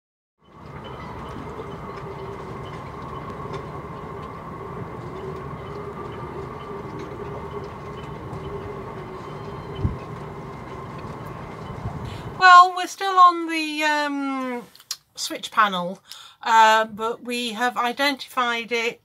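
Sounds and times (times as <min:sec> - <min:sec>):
halyards clinking against masts: 0:00.4 - 0:12.4
rigging whining: 0:00.4 - 0:12.9
wind rushing: 0:03.2 - 0:12.4.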